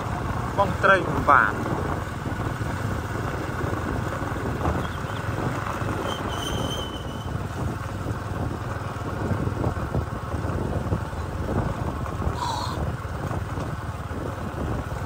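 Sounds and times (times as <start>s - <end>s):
vehicle rumbling on dirt road: 0.0s - 15.0s
wind buffeting microphone: 0.0s - 15.0s
high whistling tone: 6.0s - 7.4s.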